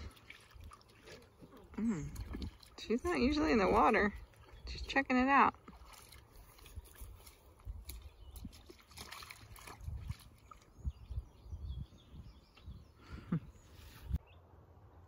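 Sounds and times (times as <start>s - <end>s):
wading in shallow water: 0.0s - 11.6s
wind noise on microphone: 6.5s - 14.2s.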